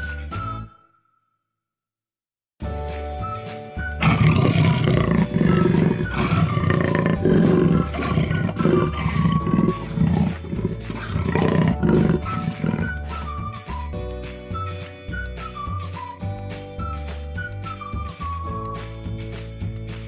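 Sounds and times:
background music: 0:00.0 - 0:00.9, 0:02.6 - 0:20.0
big cat growling and roaring: 0:04.0 - 0:13.5.

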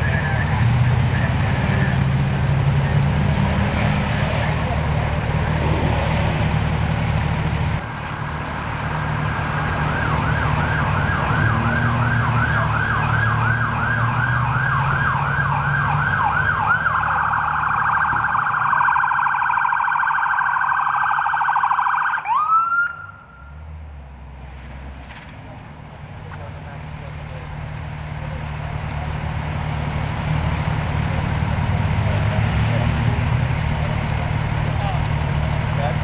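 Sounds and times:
vehicle engine rumbling: 0:00.0 - 0:36.0
ambulance siren: 0:08.1 - 0:23.6.

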